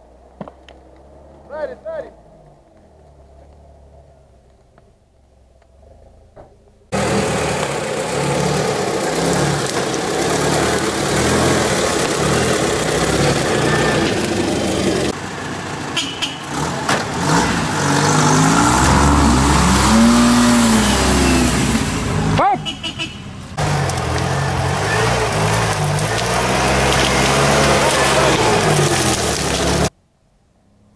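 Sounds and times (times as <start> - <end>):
off-road engines working hard: 0.0 - 30.0
engine revving: 5.6 - 22.8, 23.5 - 29.9.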